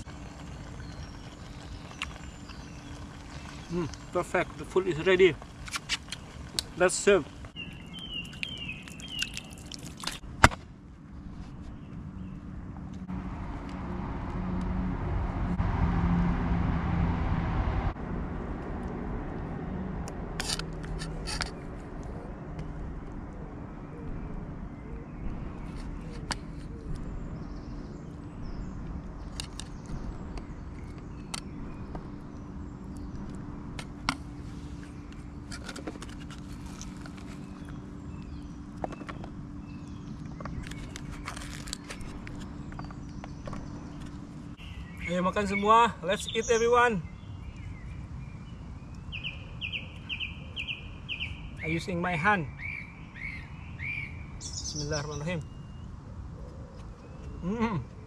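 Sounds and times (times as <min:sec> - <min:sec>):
steady low hum: 0:00.0 - 0:45.0
passing vehicle engine rumble: 0:12.1 - 0:38.6.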